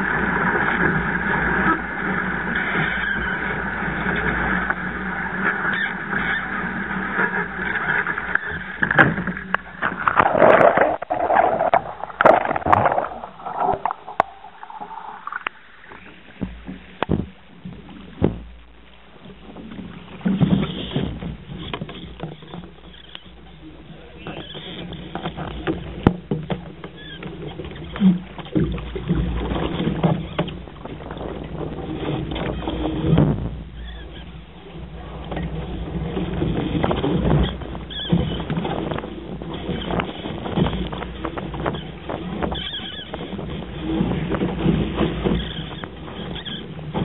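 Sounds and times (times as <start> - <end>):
water slaps and knocks on hull: 0.0 - 18.6, 19.3 - 23.6, 24.3 - 47.0
water splashing against hull: 0.0 - 47.0
wind on microphone: 8.6 - 17.4.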